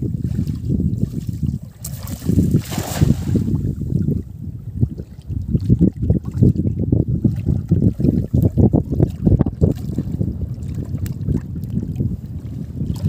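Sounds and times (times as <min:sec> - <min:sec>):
wind buffeting microphone: 0:00.0 - 0:13.0
cast net splashing into water: 0:01.8 - 0:03.6.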